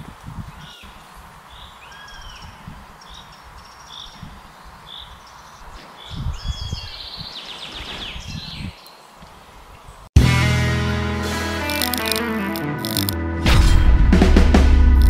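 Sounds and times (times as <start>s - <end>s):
small birds chirping: 0.0s - 10.1s.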